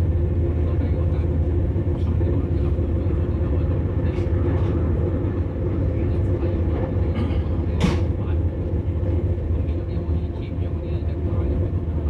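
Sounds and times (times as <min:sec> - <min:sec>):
train interior rumble and hum: 0:00.0 - 0:12.0.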